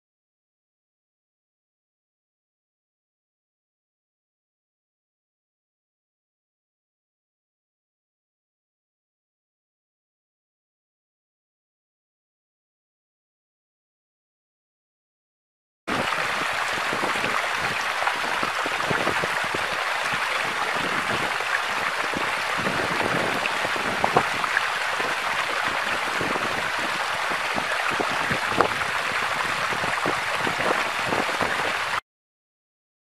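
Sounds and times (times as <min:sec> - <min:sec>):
small splashes and drips: 0:15.9 - 0:32.0
stream water rushing: 0:15.9 - 0:32.0.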